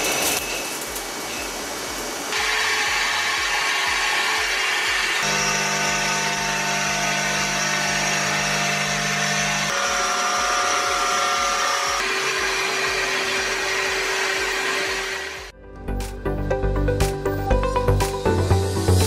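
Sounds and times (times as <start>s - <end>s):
lathe cutting metal: 2.3s - 15.5s.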